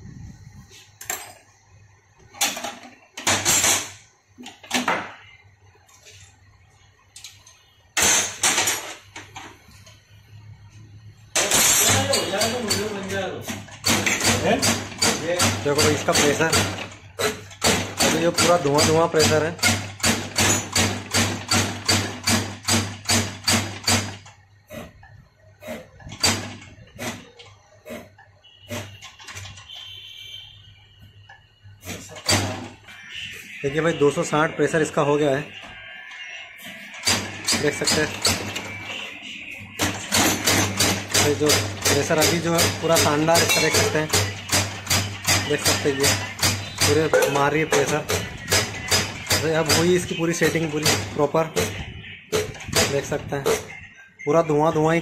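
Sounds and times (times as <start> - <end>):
high steady tone: 43.3 - 44.1
metal tools clinking on workbench: 43.4 - 44.1.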